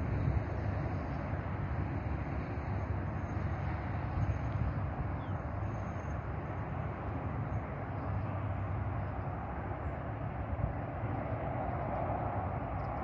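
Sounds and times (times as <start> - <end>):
wind buffeting microphone: 0.0 - 8.2.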